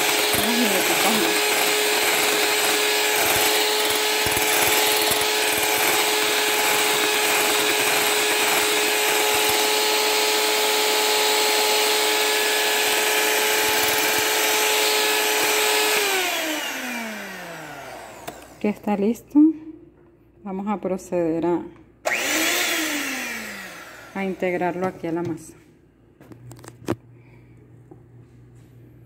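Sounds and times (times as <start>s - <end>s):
electric mixer whipping: 0.0s - 18.8s, 22.1s - 25.0s.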